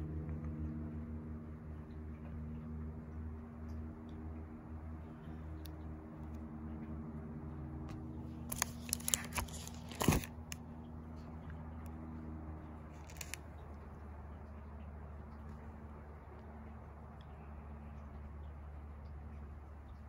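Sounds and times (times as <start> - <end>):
steady low hum: 0.0 - 20.0
album page turning crackles: 8.4 - 10.6, 13.0 - 13.4.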